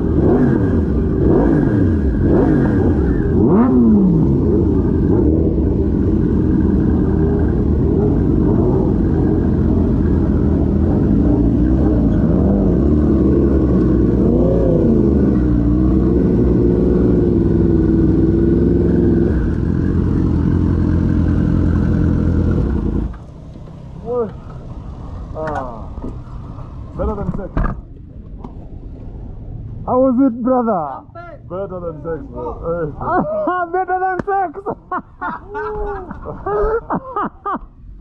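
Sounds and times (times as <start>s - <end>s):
motorcycle engine: 0.0s - 27.9s.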